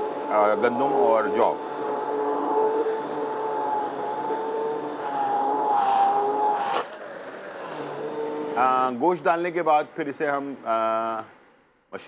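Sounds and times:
hand blender motor whine: 0.0 - 8.9.

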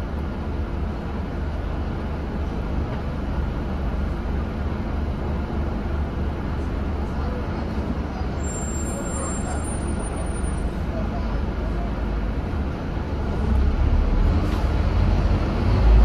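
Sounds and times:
bus diesel engine rumbling: 0.0 - 16.0
road and traffic noise: 0.0 - 16.0.

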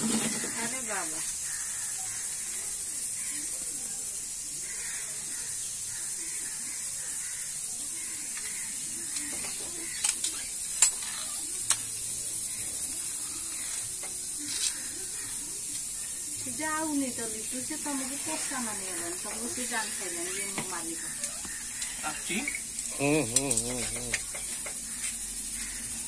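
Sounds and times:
steady high hiss: 0.0 - 26.0
stick and board tapping concrete: 23.3 - 25.2.

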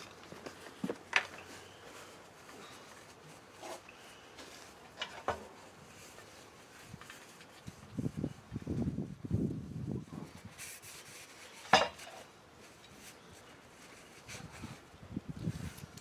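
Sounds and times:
paper towel rustling: 0.0 - 11.8.

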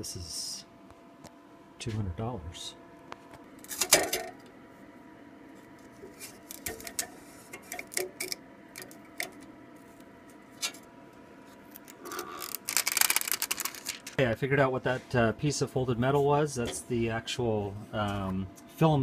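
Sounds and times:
hands handling printer parts: 11.7 - 14.2.

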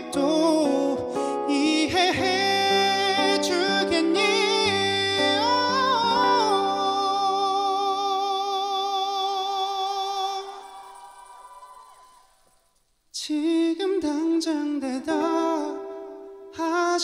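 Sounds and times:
man singing a ballad: 0.0 - 10.8, 13.1 - 17.0.

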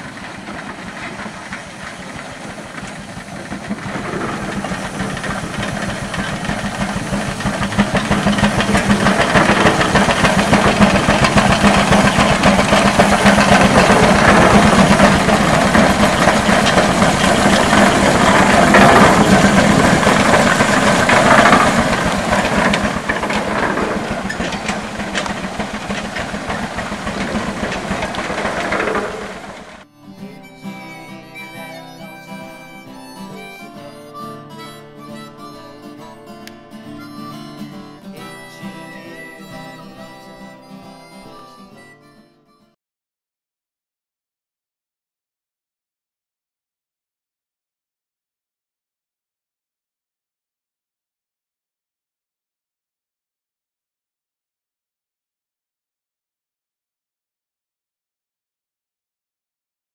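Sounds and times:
steam engine exhaust chuffing: 0.0 - 41.8.

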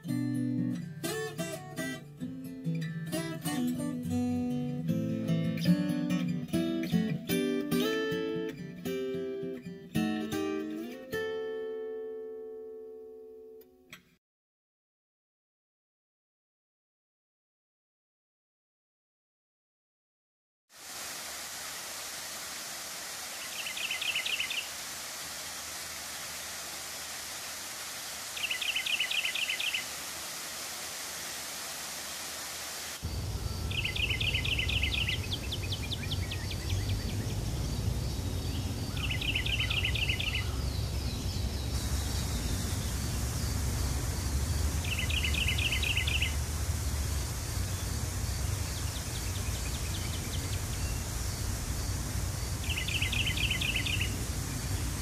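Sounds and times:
running water hissing: 20.7 - 55.0
deep rushing water: 20.8 - 55.0
small bird trilling: 44.2 - 46.4.

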